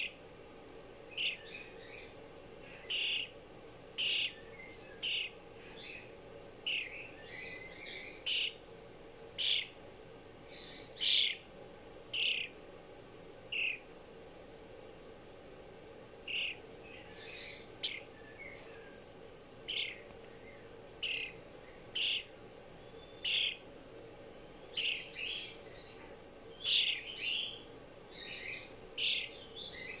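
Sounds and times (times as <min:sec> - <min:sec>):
fledgling bird chirping: 0:00.0 - 0:00.2, 0:01.1 - 0:08.7, 0:09.3 - 0:09.8, 0:10.4 - 0:11.5, 0:12.1 - 0:12.6, 0:13.5 - 0:13.9, 0:16.2 - 0:23.7, 0:24.3 - 0:30.0.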